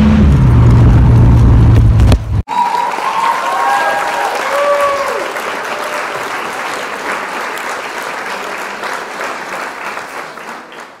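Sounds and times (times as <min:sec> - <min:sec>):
applause: 0:02.5 - 0:11.0.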